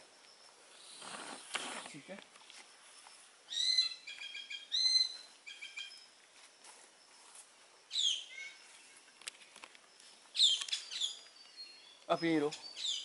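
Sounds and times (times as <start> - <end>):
birds singing: 2.8 - 6.2, 7.0 - 13.0.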